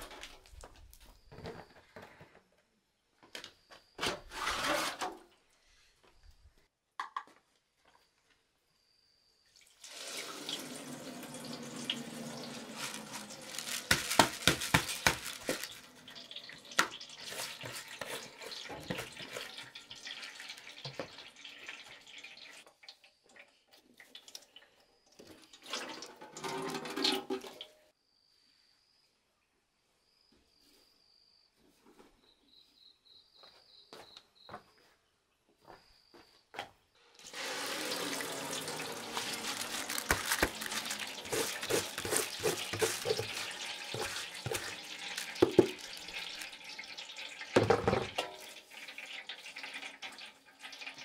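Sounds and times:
rice grains pattering: 11.8 - 16.2, 37.5 - 46.8
water splashing into basin: 37.2 - 51.0.

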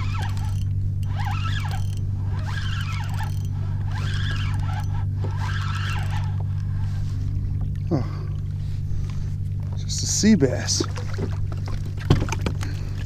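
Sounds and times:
fishing reel gear whirring: 0.0 - 7.7
steady low hum: 0.0 - 13.0.

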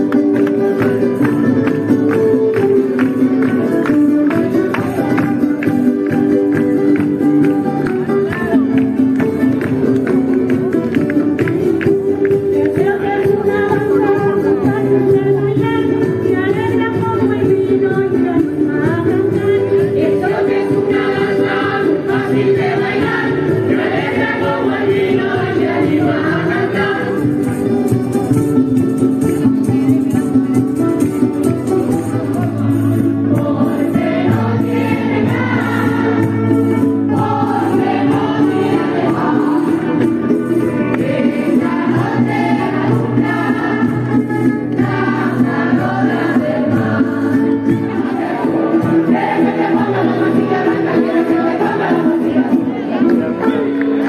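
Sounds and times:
sustained musical accompaniment: 0.0 - 54.0
group of voices singing: 11.6 - 27.9, 32.3 - 54.0.

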